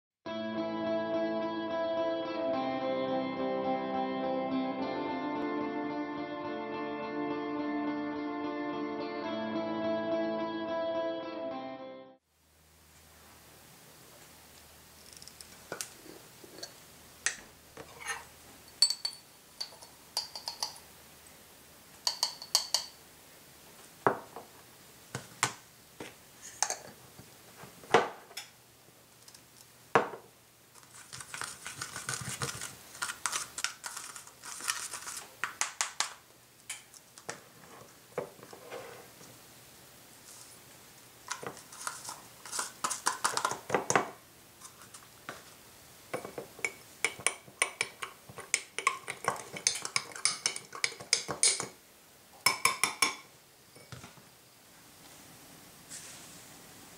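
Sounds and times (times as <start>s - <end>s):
jar and spoon clicks and knocks: 18.8s - 20.8s, 22.0s - 23.0s, 46.2s - 51.8s, 52.5s - 53.2s
metal spoon scraping plastic tub: 30.8s - 35.3s, 41.3s - 43.7s, 48.3s - 51.7s.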